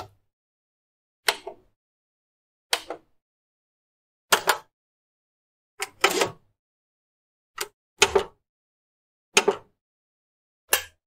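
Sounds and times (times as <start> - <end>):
plastic button clicks: 1.3 - 1.6, 4.3 - 4.7.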